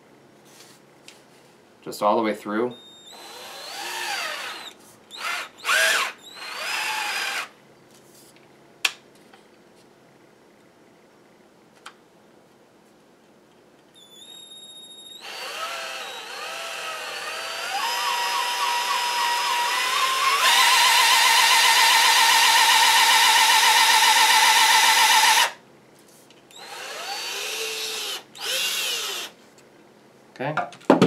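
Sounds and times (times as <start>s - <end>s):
drill motor whine: 2.7s - 7.5s, 14.0s - 25.6s, 26.5s - 29.3s.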